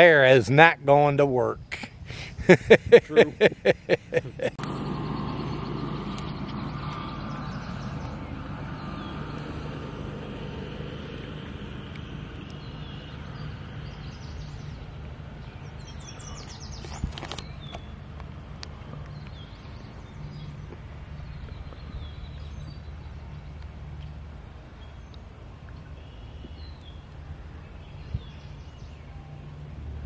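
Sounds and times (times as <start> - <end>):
low outdoor hum: 0.0 - 30.0
man laughing: 1.7 - 4.6.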